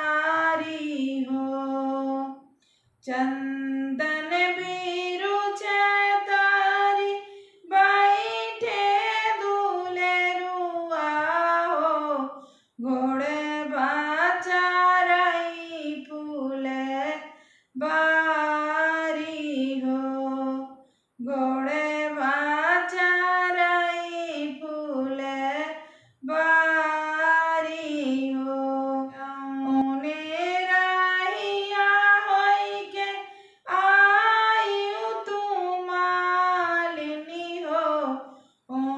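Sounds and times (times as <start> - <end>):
woman singing folk song: 0.0 - 2.4, 3.0 - 38.9.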